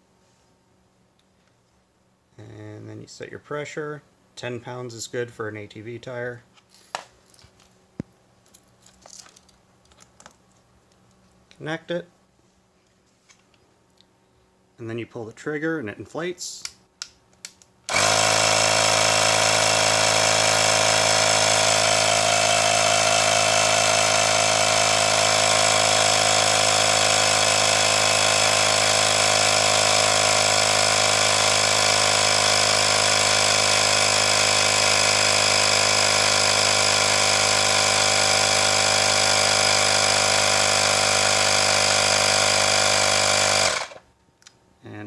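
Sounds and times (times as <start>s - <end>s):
electric air compressor running: 17.9s - 44.0s.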